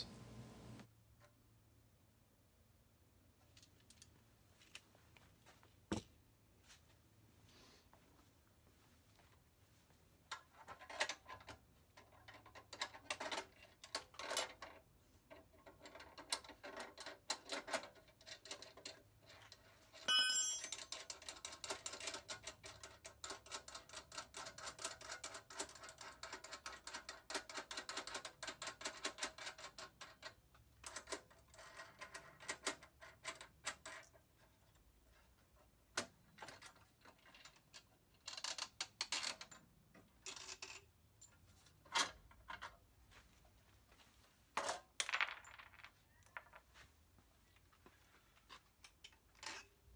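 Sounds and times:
metallic clicks and clinks: 20.0 - 22.9
ringing metal tone: 20.1 - 20.8.

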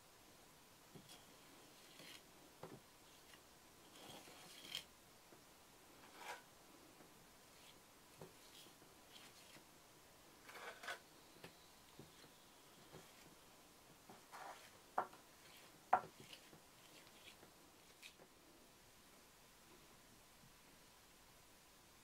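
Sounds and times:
trowel scraping clay plaster: 1.0 - 2.3, 3.1 - 4.9, 10.4 - 11.0, 14.2 - 14.8, 15.4 - 18.2.

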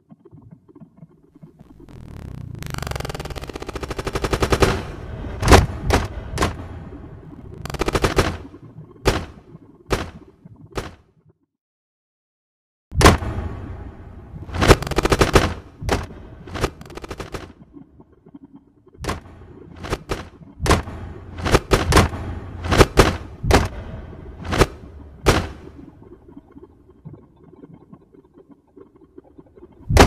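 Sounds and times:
loud banging and knocking: 19.8 - 23.8.

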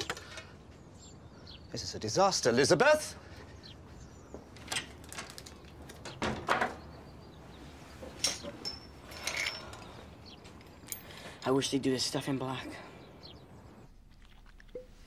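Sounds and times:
gear knocks and clinks: 8.0 - 11.3.

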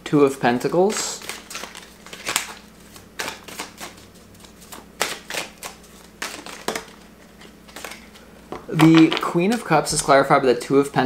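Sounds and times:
cards rustling: 0.6 - 10.3
cards snapping and slapping: 0.9 - 9.7.

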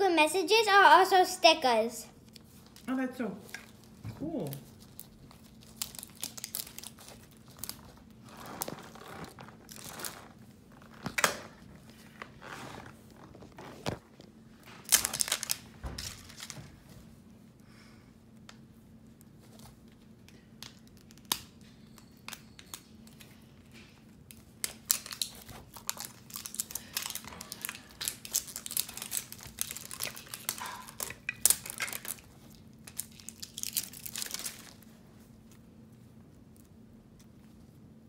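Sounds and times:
plastic wrapping crackling and tearing: 2.2 - 14.0, 14.6 - 16.7, 24.0 - 35.0.

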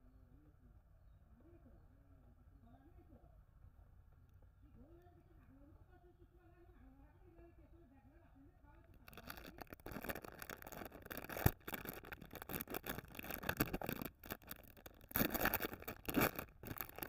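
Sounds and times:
candy wrapper crinkling: 9.0 - 17.0.

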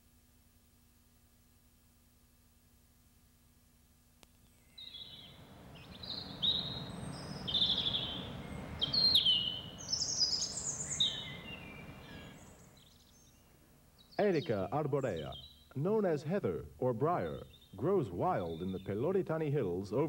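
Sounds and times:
steady background hiss: 0.0 - 20.0
small birds chirping: 4.4 - 20.0.

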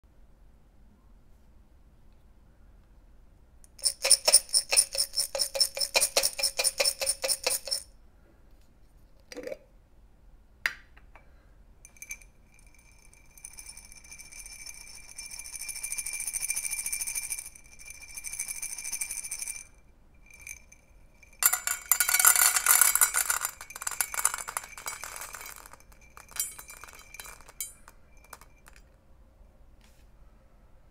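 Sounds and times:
kibble rattling in container: 21.3 - 28.8
kibble pouring into metal bowl: 21.4 - 28.8.

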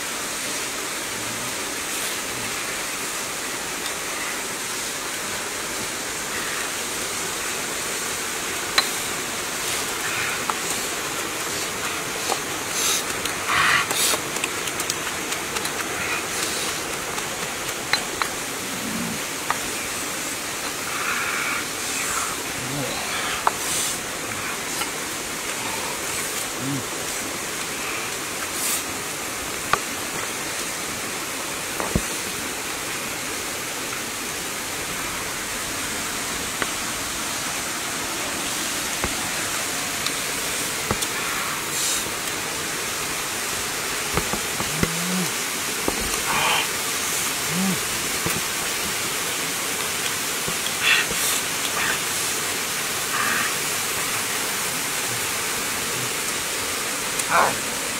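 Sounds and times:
waterfall rushing: 0.0 - 57.9
low vocal sounds: 1.0 - 3.0, 8.8 - 28.9, 33.8 - 57.9.

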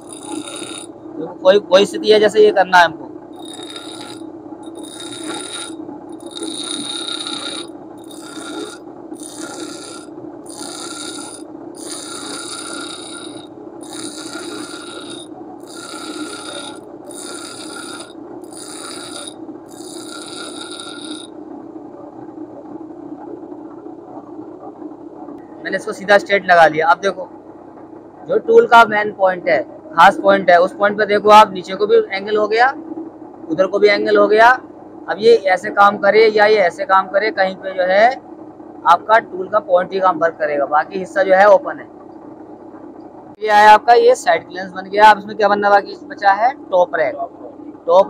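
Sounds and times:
grinder motor humming: 0.0 - 1.0, 3.3 - 21.4
high-pitched metal grinding: 0.0 - 1.0, 3.4 - 21.3.

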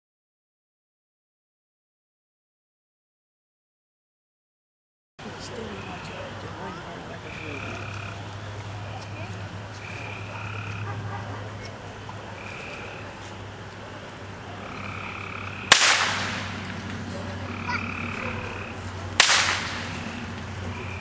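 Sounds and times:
low hum: 7.2 - 21.0
blank pistol shots: 15.7 - 16.6, 19.2 - 19.9.

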